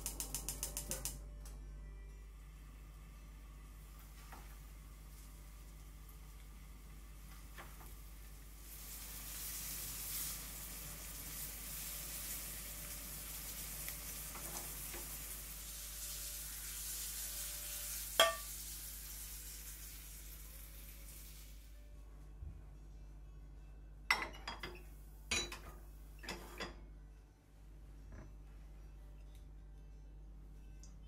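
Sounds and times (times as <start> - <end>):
fish sizzling in a frying pan: 8.2 - 21.8.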